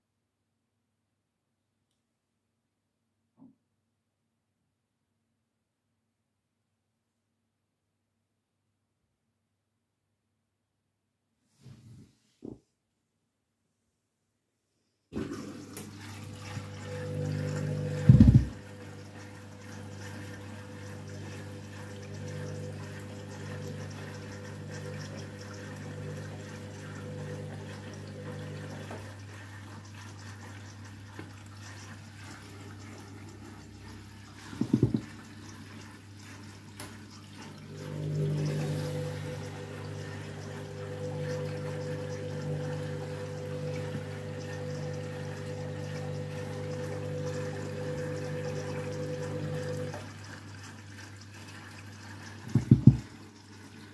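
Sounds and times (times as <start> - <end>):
washing machine low hum: 15.1 - 53.9
water running into washing machine: 15.1 - 53.9.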